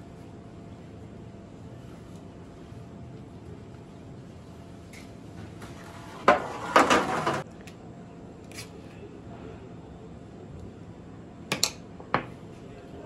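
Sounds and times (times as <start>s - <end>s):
metal tray and dishes clattering: 6.3s - 7.4s.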